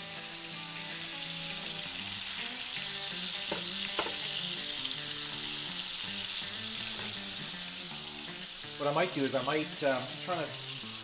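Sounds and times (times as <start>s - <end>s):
meat sizzling in butter: 0.0s - 11.0s
metal tongs clicking on pan: 3.5s - 4.3s.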